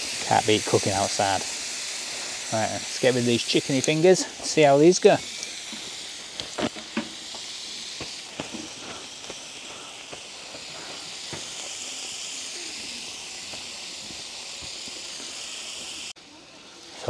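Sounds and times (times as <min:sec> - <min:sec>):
chicken sizzling on grill: 0:00.0 - 0:17.0
sharp pops and clicks: 0:05.4 - 0:10.6.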